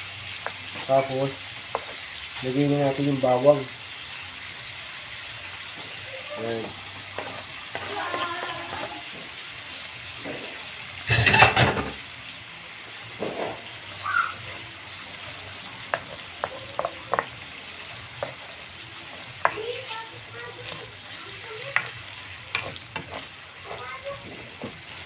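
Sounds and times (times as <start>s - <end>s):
meat sizzling in a wok: 0.0s - 25.0s
spatula knocking against wok: 15.8s - 17.4s, 19.4s - 19.6s.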